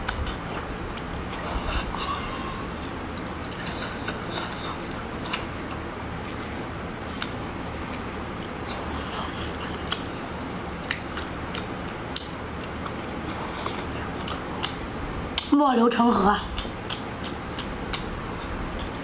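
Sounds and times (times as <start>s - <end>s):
steady low hum: 0.0s - 19.0s
wet chewing and slurping: 3.5s - 14.8s
sticky mouth clicks: 10.8s - 14.8s, 16.5s - 19.0s.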